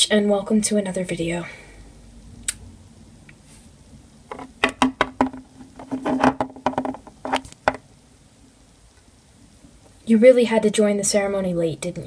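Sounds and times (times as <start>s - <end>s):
plastic toy tapping on tabletop: 4.3s - 7.8s.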